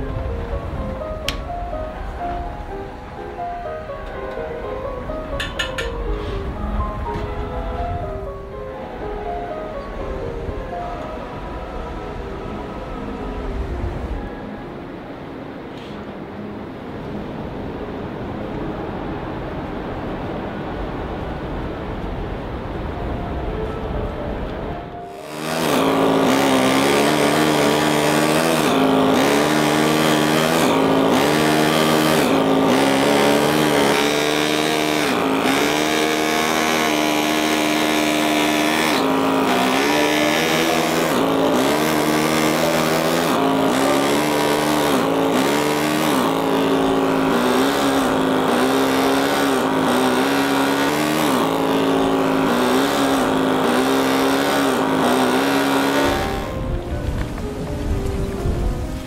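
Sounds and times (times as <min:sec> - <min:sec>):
power tool cutting stone: 0:25.1 - 0:56.6.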